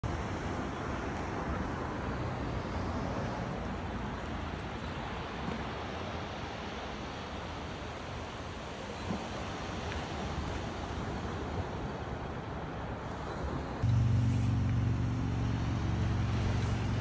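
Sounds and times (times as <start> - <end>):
ocean surf breaking: 5.0 - 17.0.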